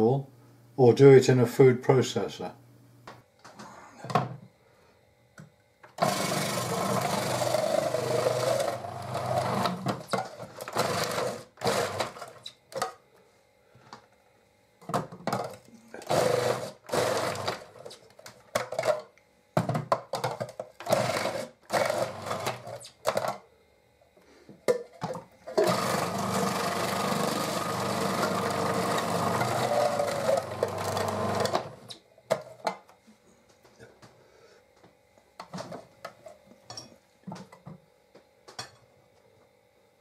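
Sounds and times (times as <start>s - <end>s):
food processor chopping: 6.0s - 12.4s, 15.4s - 17.9s, 20.8s - 23.4s, 25.5s - 31.9s.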